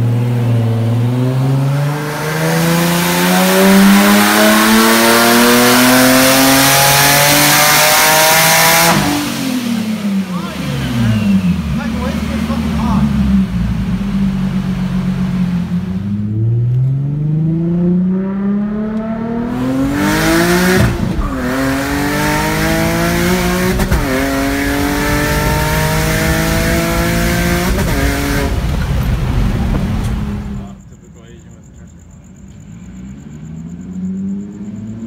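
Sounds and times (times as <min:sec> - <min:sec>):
turbocharged car engine accelerating: 0:00.0 - 0:30.9, 0:32.3 - 0:35.0.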